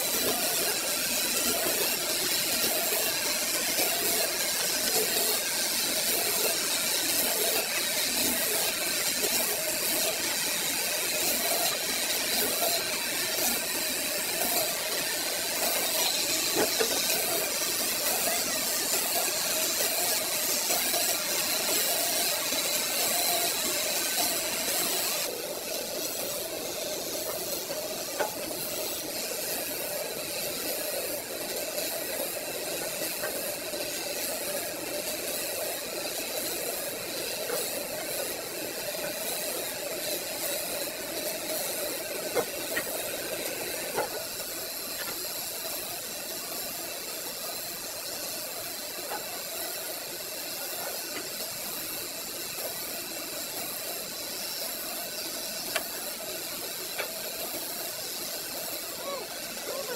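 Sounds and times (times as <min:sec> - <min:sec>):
band saw humming and hissing: 0:00.0 - 0:59.9.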